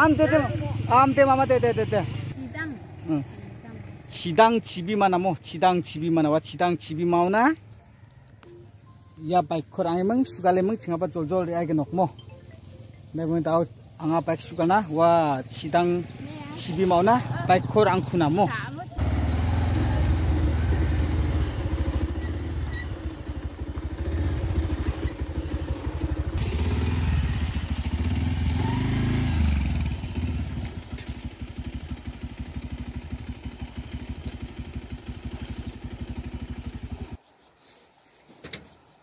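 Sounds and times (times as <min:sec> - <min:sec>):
motorcycle engine revving: 0:00.0 - 0:04.2, 0:15.2 - 0:37.2.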